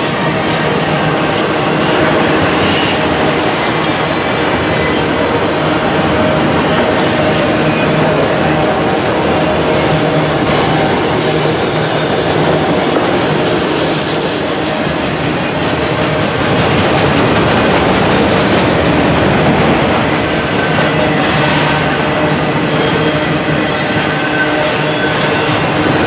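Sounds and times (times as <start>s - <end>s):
freight cars rumbling on rails: 0.0s - 26.0s
faint wheel squeal: 21.5s - 22.1s.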